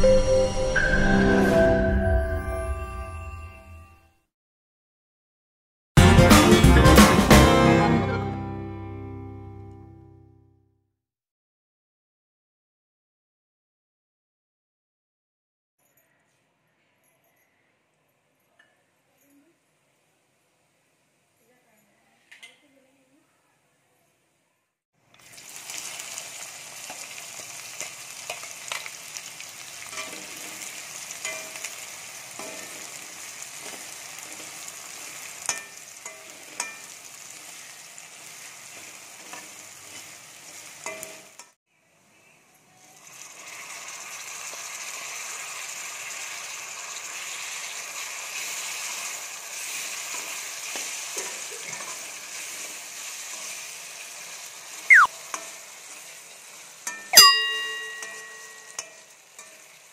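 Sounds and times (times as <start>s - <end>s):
onions sizzling in hot oil: 25.1s - 41.6s, 42.5s - 59.9s
metal spatula scraping a pan: 29.8s - 37.6s, 38.2s - 41.6s, 49.6s - 54.0s, 57.8s - 59.9s.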